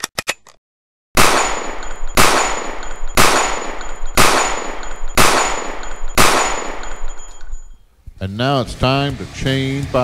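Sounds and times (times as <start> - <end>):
echoing gunshots: 1.2 - 7.3.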